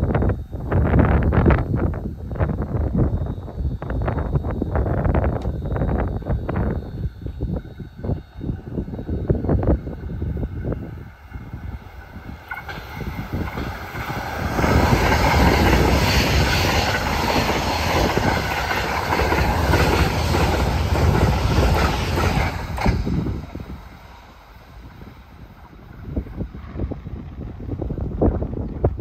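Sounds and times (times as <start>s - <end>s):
train rushing past: 7.2s - 29.0s
rail-joint clatter: 12.1s - 24.1s.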